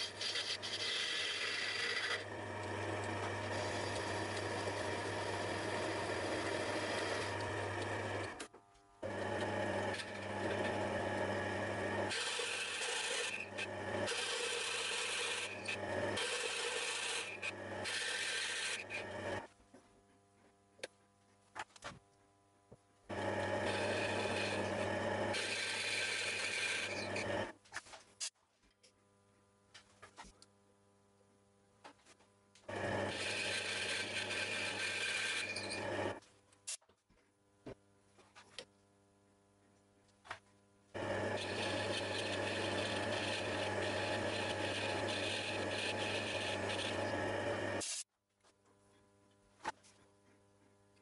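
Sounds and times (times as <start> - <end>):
lathe motor hum: 0.0 - 8.4, 9.0 - 19.5, 23.1 - 27.5, 32.7 - 36.2, 41.0 - 47.8
lathe rasping cut: 0.0 - 8.4, 9.1 - 19.4, 23.1 - 27.5, 32.7 - 36.2, 41.0 - 47.8.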